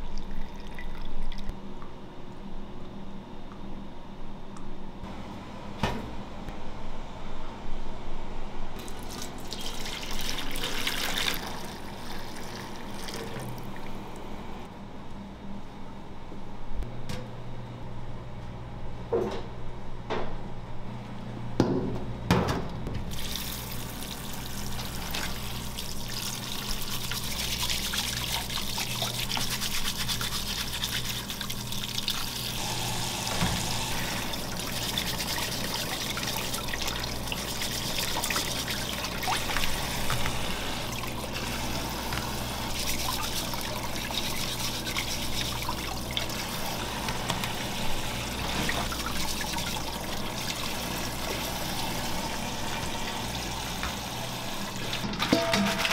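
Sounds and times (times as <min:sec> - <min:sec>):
brush scrubbing crab shells: 0:26.6 - 0:32.3, 0:42.6 - 0:46.2.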